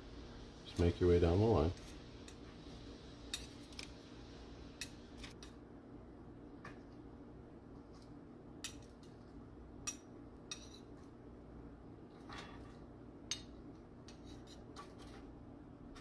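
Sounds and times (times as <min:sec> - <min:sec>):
faint steady hum: 0:00.0 - 0:16.0
metal spoons clinking and scraping: 0:03.3 - 0:03.9, 0:09.8 - 0:11.0, 0:12.2 - 0:15.2.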